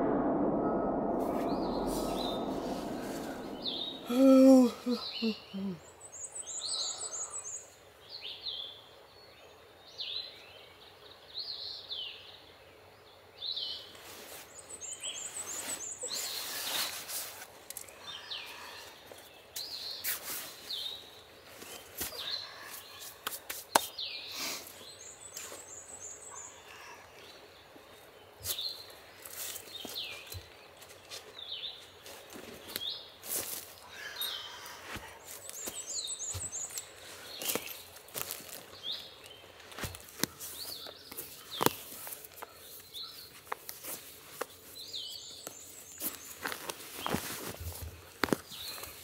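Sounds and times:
songbirds chirping: 3.4s - 14.0s, 17.7s - 49.0s
rustling of leaves and clothing: 13.9s - 26.0s, 27.2s - 49.0s.

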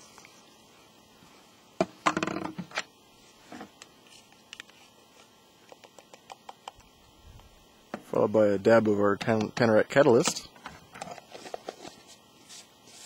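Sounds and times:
rustling scrape: 11.1s - 13.0s.

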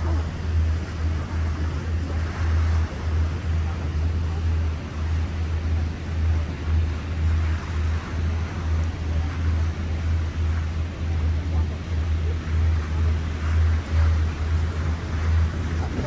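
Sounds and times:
boat and water rushing: 0.0s - 16.0s
wind buffeting microphone: 0.0s - 16.0s.

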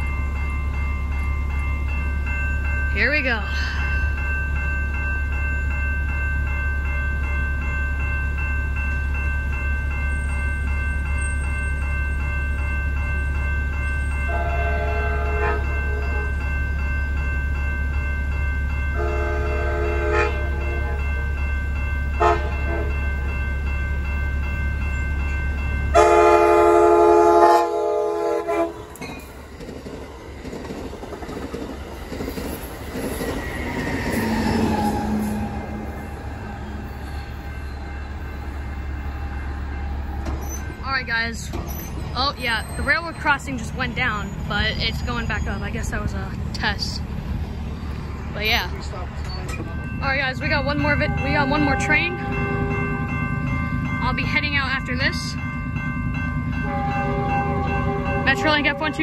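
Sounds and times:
crossing warning bell ringing: 0.0s - 59.0s
train wheels rumbling past: 0.0s - 59.0s
train horn blasts: 14.3s - 16.4s, 19.0s - 21.0s, 22.2s - 22.9s, 25.9s - 28.9s, 51.0s - 52.8s, 56.6s - 59.0s.

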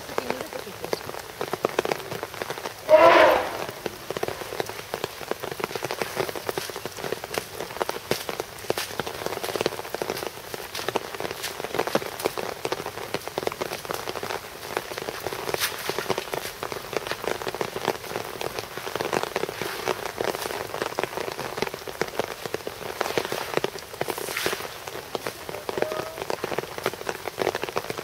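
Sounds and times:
rain on concrete and puddles: 0.0s - 28.0s
short loud pitched call: 2.9s - 3.8s.

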